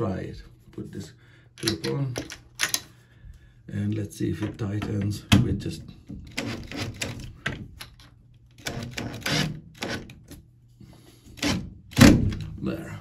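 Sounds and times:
cordless drill driving screw: 8.6 - 10.1.

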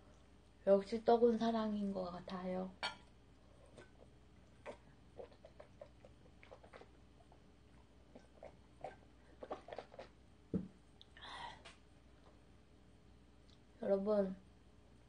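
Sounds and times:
cup knocking on table: 10.5 - 10.7.

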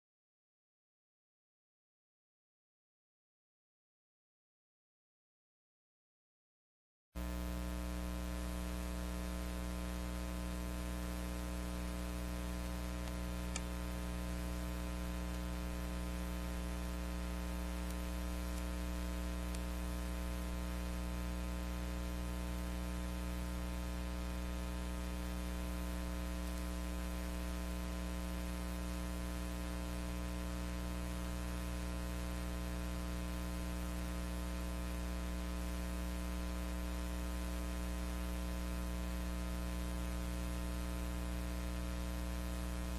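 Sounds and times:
electrical mains hum: 7.2 - 42.9
faint click: 12.6 - 14.0.

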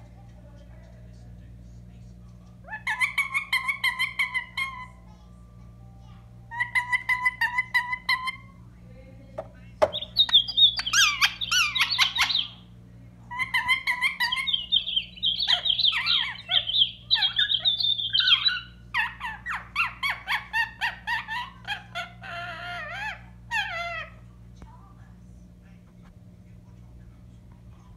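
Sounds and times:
parrot chirping and squawking: 2.6 - 5.1, 6.5 - 8.6, 9.8 - 24.3.

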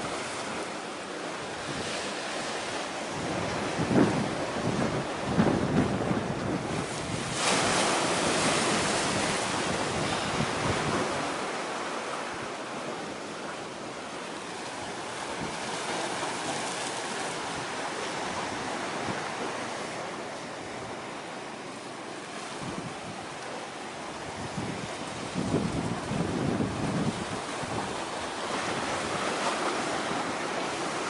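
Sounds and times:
sea waves washing: 0.0 - 31.0
wind buffeting microphone: 1.5 - 11.6, 22.3 - 31.0.

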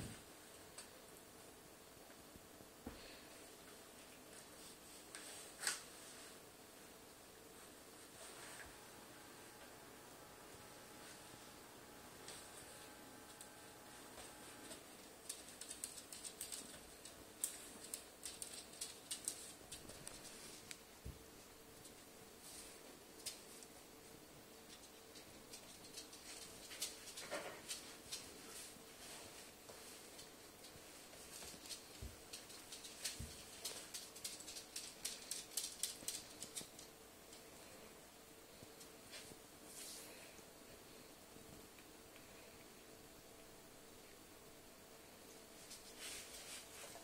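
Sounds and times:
claws scrabbling on laminate floor: 12.9 - 20.8, 24.6 - 37.5.

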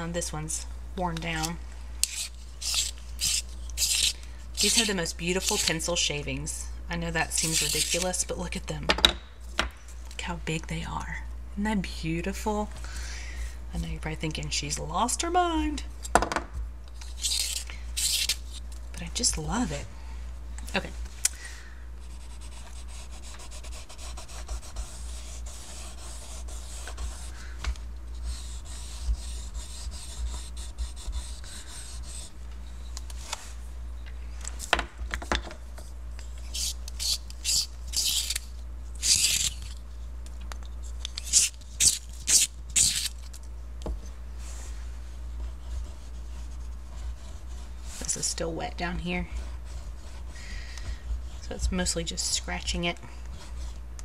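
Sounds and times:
colour pencil rubbing on paper: 2.7 - 5.6, 22.0 - 27.4, 28.1 - 32.3, 44.4 - 50.4
pencil scratchy strokes: 22.0 - 32.3, 36.5 - 38.3, 44.4 - 51.6.

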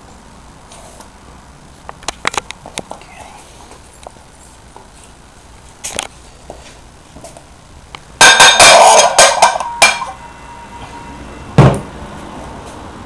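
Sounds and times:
metal ringing: 8.2 - 11.8
heavy thump: 11.6 - 11.9.

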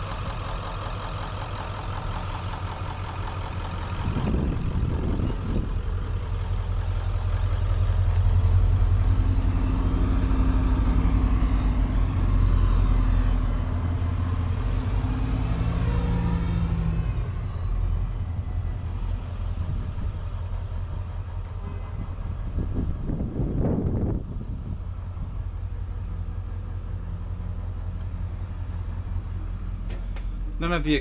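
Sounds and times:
truck engine idling: 0.0 - 31.0.

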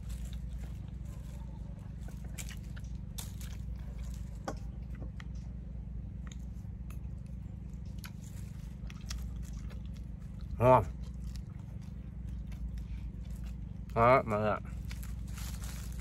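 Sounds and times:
steady low hum: 0.0 - 16.0
wet chewing with crunches: 0.0 - 16.0.

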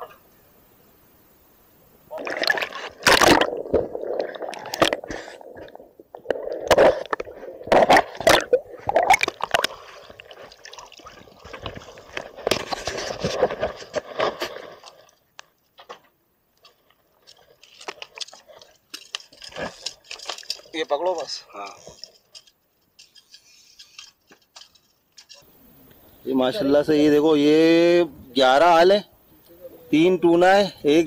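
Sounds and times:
sea water sloshing and gurgling: 2.1 - 15.2.

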